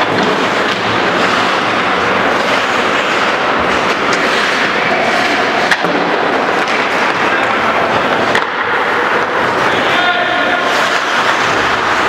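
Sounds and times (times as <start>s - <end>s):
faint clicks of sticks and puck: 0.0s - 9.8s, 10.6s - 12.0s
skates scraping on ice: 0.0s - 12.0s.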